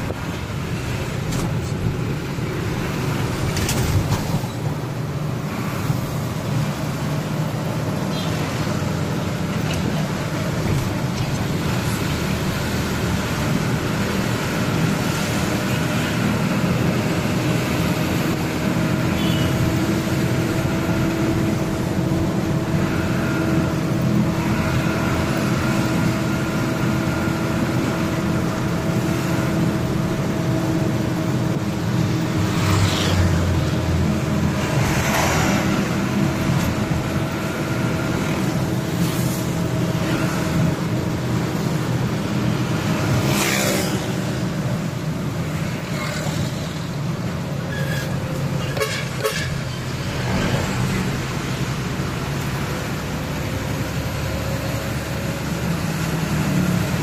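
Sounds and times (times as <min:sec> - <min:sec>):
passing vehicles rushing by: 0:00.0 - 0:57.0
road noise inside cab: 0:00.0 - 0:57.0
car horn toot: 0:19.2 - 0:19.6, 0:48.8 - 0:49.6.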